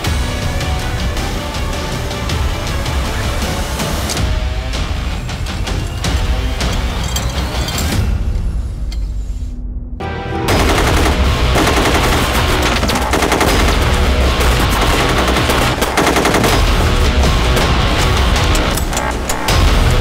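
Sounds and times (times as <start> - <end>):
background music: 0.0 - 20.0
rapid automatic gunfire: 10.5 - 19.6.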